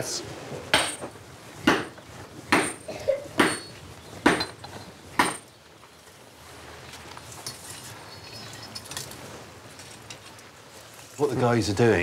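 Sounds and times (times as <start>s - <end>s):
hammer striking steel: 1.7s - 2.8s, 3.4s - 3.7s.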